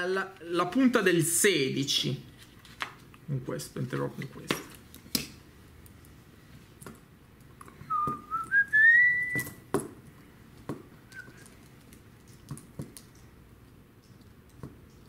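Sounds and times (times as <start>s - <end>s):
person whistling: 7.9s - 9.6s, 11.1s - 11.5s.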